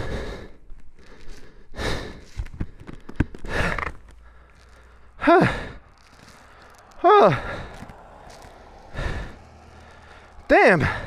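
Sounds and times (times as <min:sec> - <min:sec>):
person breathing heavily: 0:00.0 - 0:11.0
person groaning: 0:05.2 - 0:05.8.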